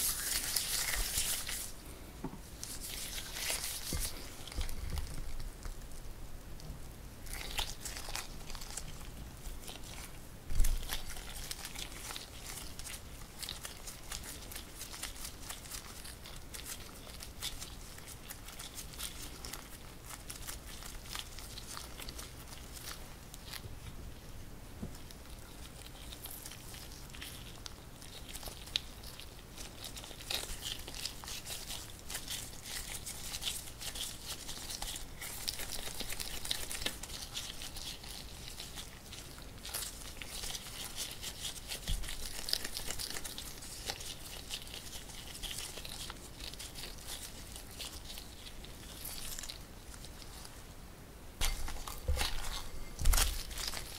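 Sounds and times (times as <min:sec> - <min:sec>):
dough crackling and tearing: 0:00.0 - 0:01.9, 0:02.5 - 0:24.0, 0:24.8 - 0:50.8, 0:51.4 - 0:53.9.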